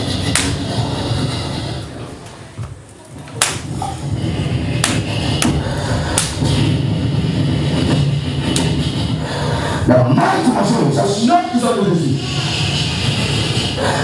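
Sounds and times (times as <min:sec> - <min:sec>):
low rumble: 0:03.6 - 0:10.0.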